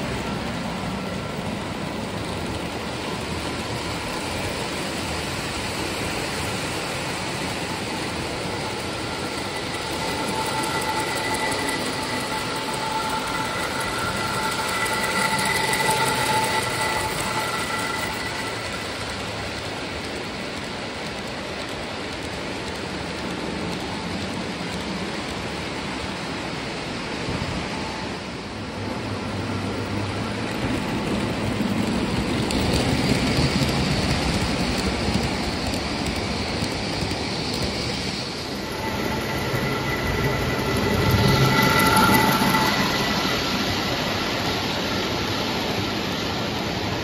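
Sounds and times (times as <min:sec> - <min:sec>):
steady high tone: 0:00.0 - 0:20.6, 0:37.1 - 0:46.2
model train rolling rumble: 0:00.0 - 0:47.0.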